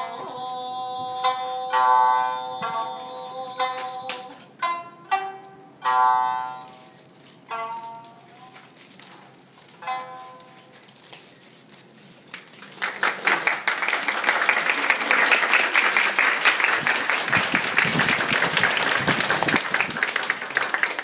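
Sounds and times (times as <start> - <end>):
audience applauding: 12.6 - 21.0.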